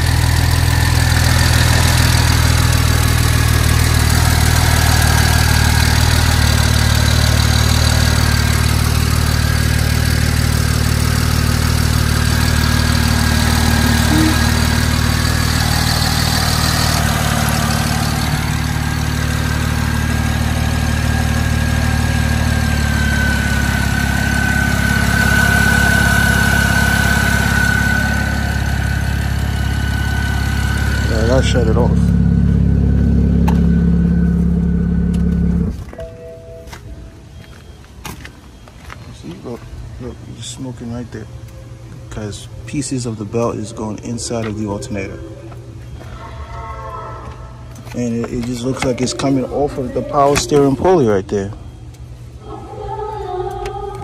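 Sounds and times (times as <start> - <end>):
car engine idling: 0.0 - 36.0
thin high whine: 13.4 - 15.2.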